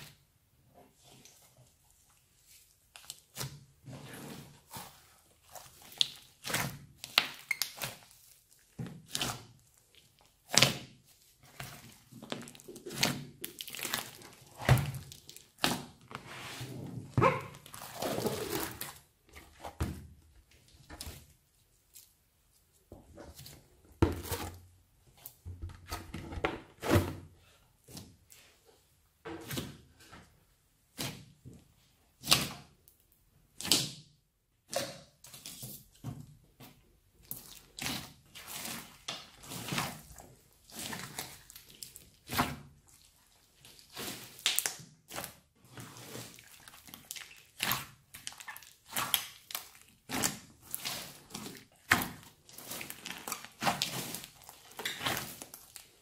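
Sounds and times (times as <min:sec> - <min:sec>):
slime squishes and sticky pops: 0:04.7 - 0:16.2, 0:32.2 - 0:35.6, 0:37.2 - 0:56.0.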